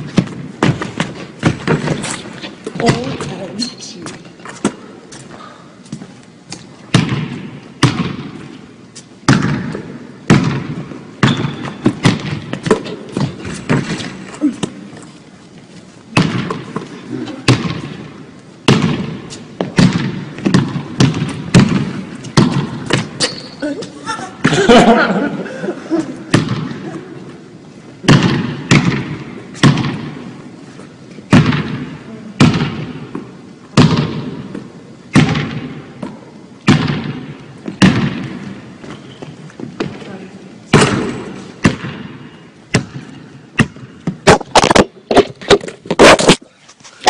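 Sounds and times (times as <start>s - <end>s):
basketball bouncing on hardwood: 0.0s - 2.0s, 6.9s - 8.4s, 9.3s - 14.0s, 18.7s - 23.2s.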